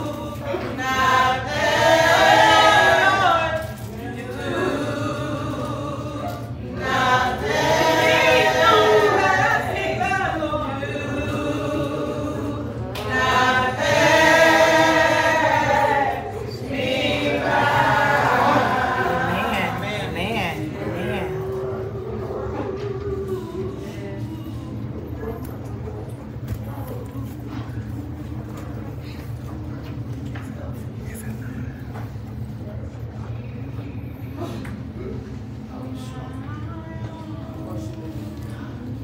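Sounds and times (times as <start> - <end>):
choir singing: 0.0 - 24.1.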